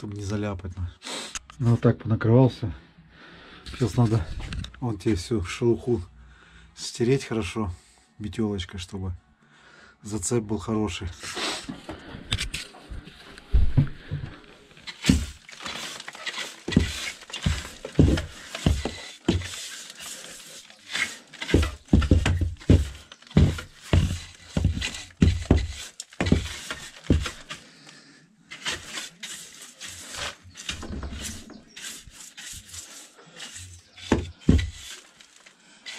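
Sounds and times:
brush scrubbing plaster wall: 14.9s - 27.7s, 28.4s - 35.9s.

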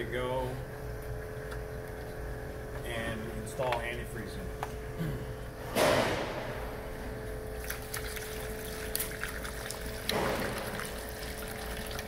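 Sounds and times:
liquid pouring into a funnel: 7.5s - 12.0s.

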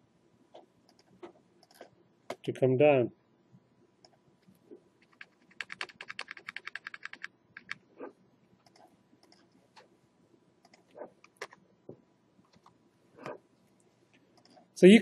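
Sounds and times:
keyboard key tapped rapidly: 5.0s - 7.8s.

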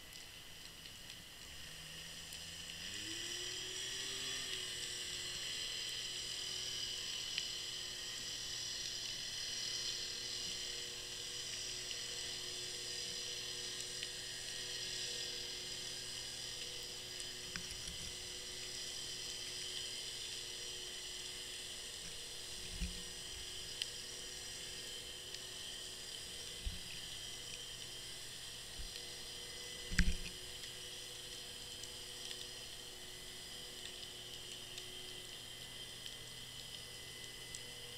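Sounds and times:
low hum: 21.8s - 31.8s.

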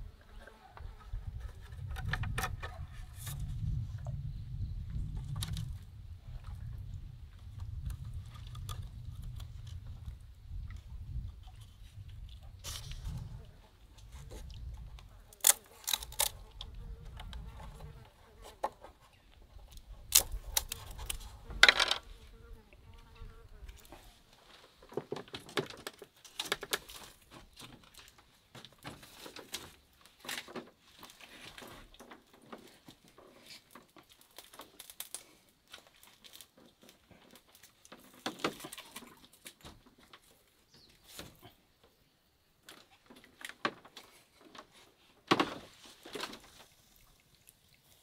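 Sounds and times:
bamboo sticks clicking and knocking: 7.5s - 9.9s, 14.4s - 17.8s, 18.6s - 22.0s, 24.7s - 40.4s.

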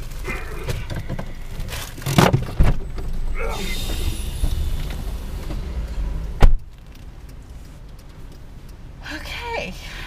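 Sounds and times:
car door thump: 2.1s - 2.8s, 6.4s - 6.7s
traffic noise hiss: 3.2s - 10.0s.

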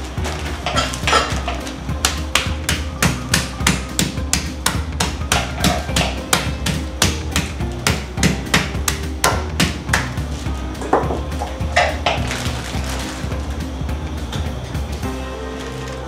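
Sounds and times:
meat hammer pounding chicken: 0.6s - 10.3s.

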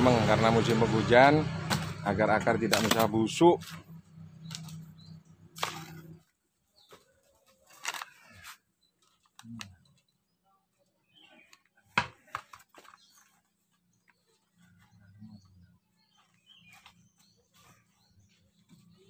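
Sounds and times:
hands scraping sand and soil: 16.3s - 19.0s.

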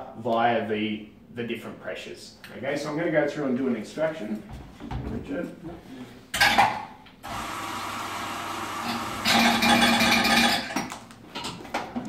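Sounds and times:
electric coffee grinder running: 7.2s - 10.6s.

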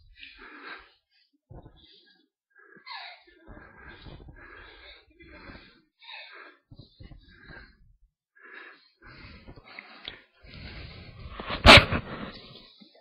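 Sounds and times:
person puffing breath: 11.1s - 12.4s.

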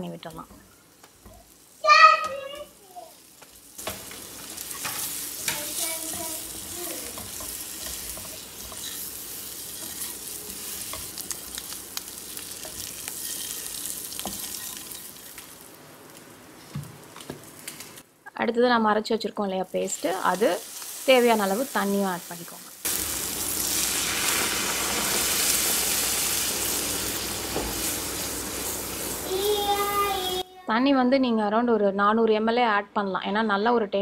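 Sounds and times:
oil sizzling: 0.0s - 18.1s, 19.3s - 30.5s
wooden spatula clicks and scrapes: 3.4s - 13.6s.

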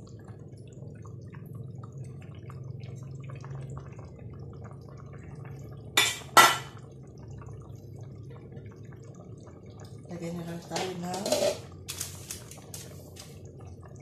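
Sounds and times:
liquid simmering: 0.0s - 14.0s
low steady hum: 0.0s - 14.0s
ladle scraping a pot: 10.8s - 12.5s.

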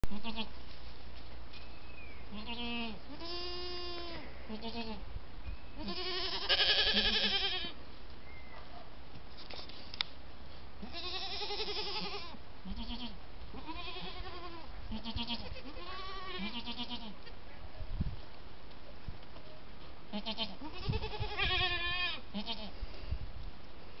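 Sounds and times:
goats bleating: 0.1s - 0.5s, 2.3s - 5.0s, 5.8s - 7.8s, 10.8s - 17.4s, 20.1s - 22.7s.

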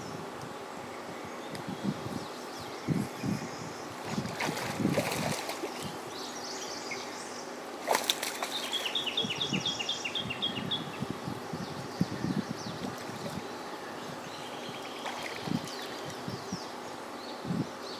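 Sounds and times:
faint wind and water hiss: 0.0s - 17.9s.

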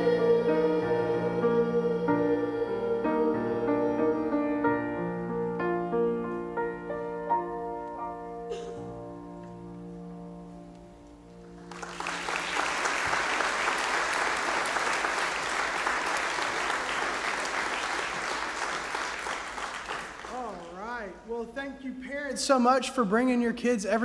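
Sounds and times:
congregation applauding: 11.6s - 21.2s.

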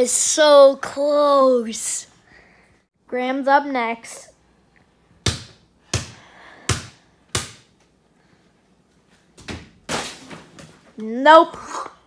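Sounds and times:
basketball bouncing: 5.2s - 7.7s.

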